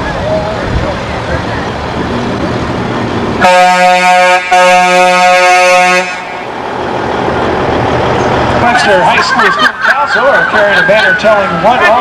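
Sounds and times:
vehicle horn blasts: 3.4 - 6.4.

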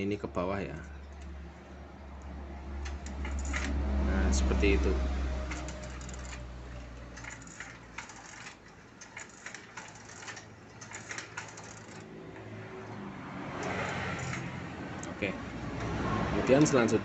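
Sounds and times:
metallic clicks and rattles: 2.2 - 3.8, 5.4 - 13.0, 13.6 - 17.0.

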